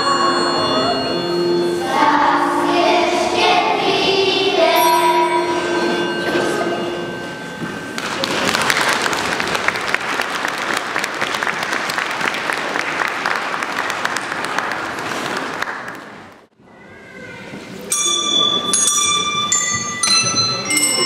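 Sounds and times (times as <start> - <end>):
bell notes ringing: 0.0 - 9.2, 17.9 - 21.0
audience applauding: 8.0 - 16.4.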